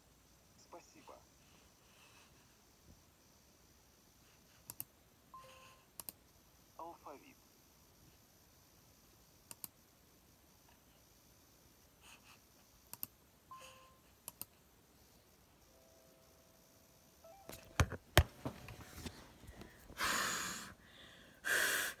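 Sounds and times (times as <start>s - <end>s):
faint clicks: 4.6s - 4.9s, 6.0s - 6.2s, 9.4s - 9.8s, 12.9s - 13.2s, 14.2s - 14.6s
breathy exhalations: 19.5s - 22.0s.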